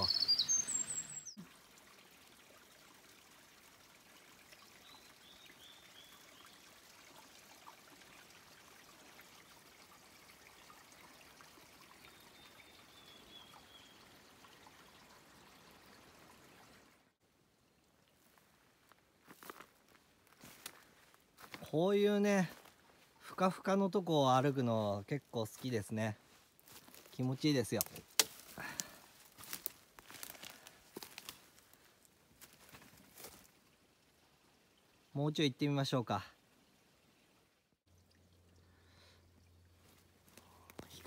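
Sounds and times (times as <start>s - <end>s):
high bird chirps: 0.0s - 1.4s
thin bird call: 0.0s - 1.4s
faint stream trickling: 0.0s - 41.0s.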